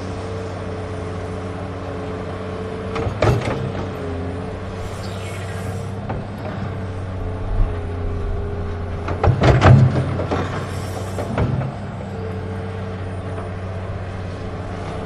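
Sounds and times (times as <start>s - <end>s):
electric motors whining: 4.4s - 7.7s.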